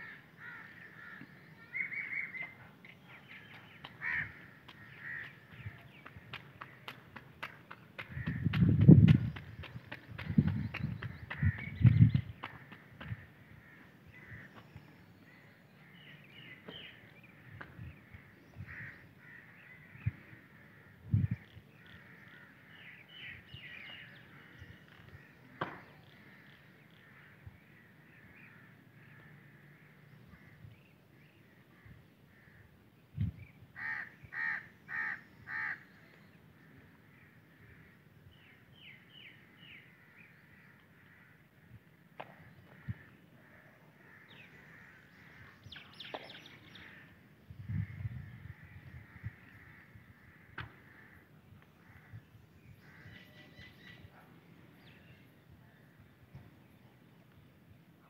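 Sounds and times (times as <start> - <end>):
crow cawing: 0.0 - 2.3, 3.9 - 5.4, 12.5 - 14.6, 17.4 - 21.0, 21.8 - 23.3, 33.8 - 35.8, 39.7 - 41.8, 42.6 - 45.6, 47.8 - 52.2
small birds chirping: 0.4 - 20.4.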